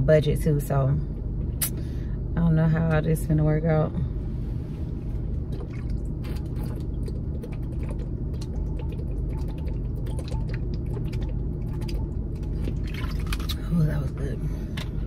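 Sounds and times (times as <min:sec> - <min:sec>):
low car hum: 0:00.0 - 0:15.0
person gulping water: 0:05.4 - 0:13.6.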